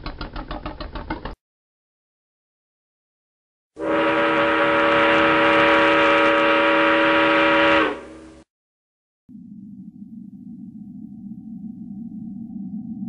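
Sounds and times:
train horn blast: 3.8 - 8.5.

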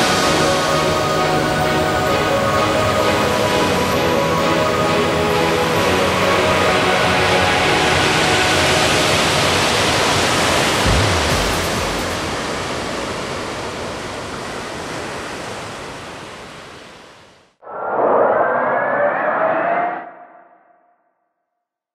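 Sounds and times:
rising electronic whoosh: 17.6 - 20.9.

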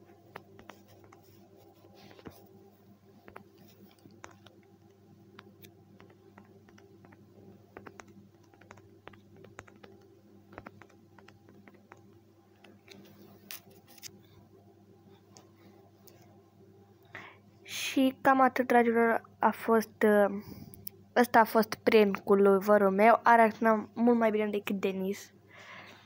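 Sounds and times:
low steady hum: 0.0 - 26.0
touchscreen typing taps: 7.8 - 12.1.

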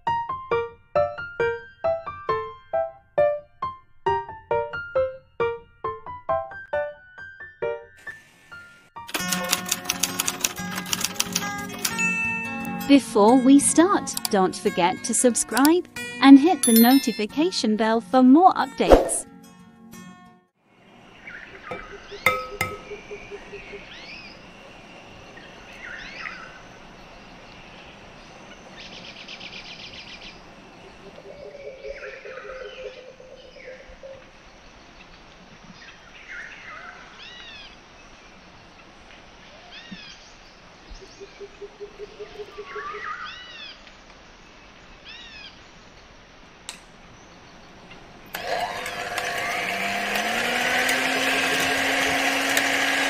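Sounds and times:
birds chirping: 20.9 - 46.1
electric hand mixer whirring: 48.3 - 53.0.

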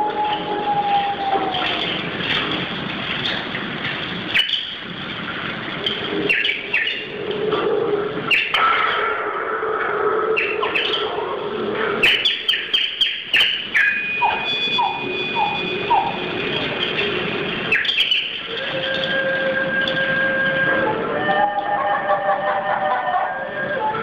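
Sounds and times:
bird-call whistles chirping: 4.4 - 4.7, 6.3 - 7.1, 8.3 - 8.6, 12.0 - 16.2, 17.7 - 18.4
hand percussion clicks and rattles: 16.0 - 20.2.

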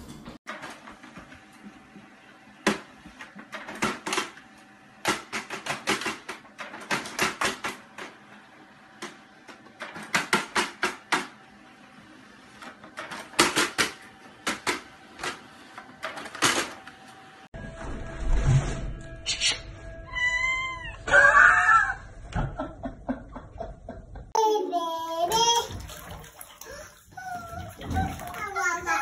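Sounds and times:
rapid printer clicking: 2.6 - 8.3, 12.4 - 17.2.

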